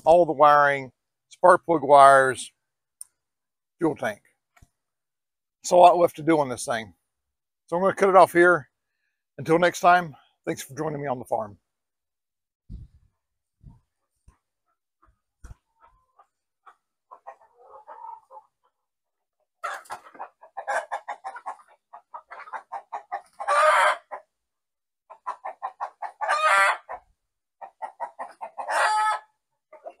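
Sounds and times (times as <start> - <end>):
chicken clucking and squawking: 13.9 - 30.0.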